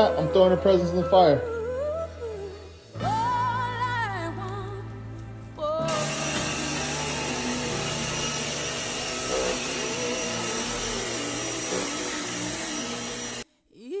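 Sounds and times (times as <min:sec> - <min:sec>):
vacuum cleaner running on carpet: 0:05.8 - 0:13.4.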